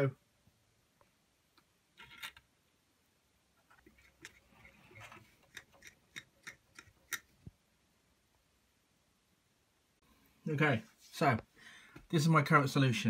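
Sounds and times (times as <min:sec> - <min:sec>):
small sharp clicks and taps: 0:05.4 - 0:07.4.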